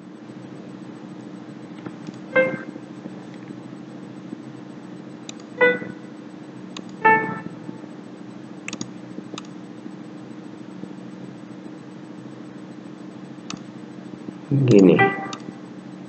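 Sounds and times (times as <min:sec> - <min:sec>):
low computer hum: 0:00.0 - 0:16.0
short synthesized notes: 0:02.4 - 0:02.8, 0:05.6 - 0:06.2, 0:07.0 - 0:07.9, 0:14.8 - 0:15.7.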